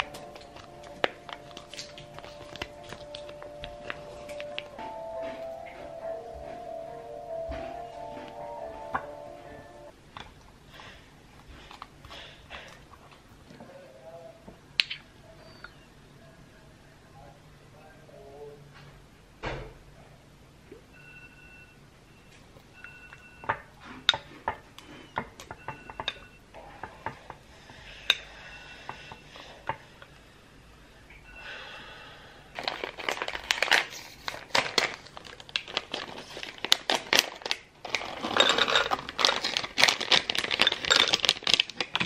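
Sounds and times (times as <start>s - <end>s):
packaging crinkling: 0.0s - 4.8s, 32.5s - 42.0s.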